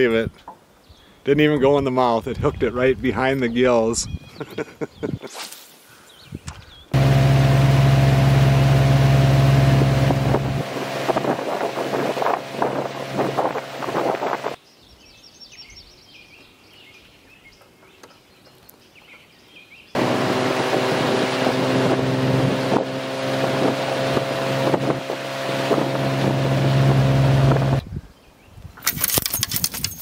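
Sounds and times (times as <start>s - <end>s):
wind on microphone: 2.2s - 5.3s, 9.8s - 14.6s, 20.7s - 30.0s
outboard motor droning: 7.0s - 14.6s, 20.0s - 27.8s.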